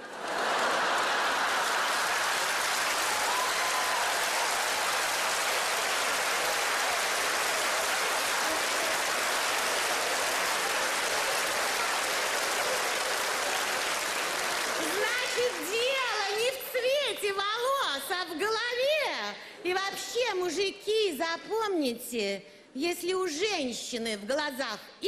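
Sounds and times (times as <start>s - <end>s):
audience laughter: 0.0s - 2.5s
audience applause: 0.0s - 16.6s.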